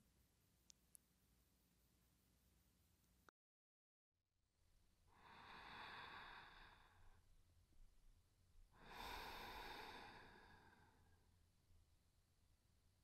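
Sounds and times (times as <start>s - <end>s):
woman breathing softly: 5.1s - 7.4s, 8.7s - 11.3s.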